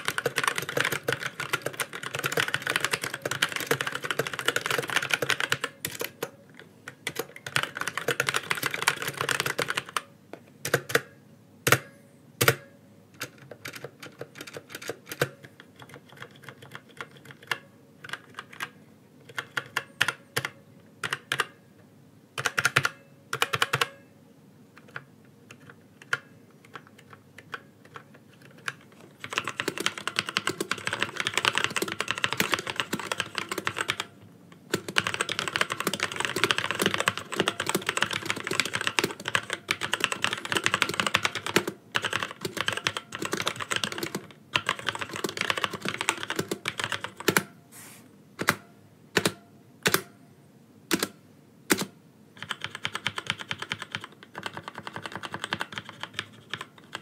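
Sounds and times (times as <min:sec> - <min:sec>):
fast continuous typing: 0:00.0 - 0:06.2, 0:07.0 - 0:10.1, 0:13.2 - 0:18.7, 0:22.4 - 0:23.9, 0:24.8 - 0:34.1, 0:34.7 - 0:47.4, 0:51.7 - 0:57.0
single keystrokes on keyboard: 0:50.9 - 0:57.0.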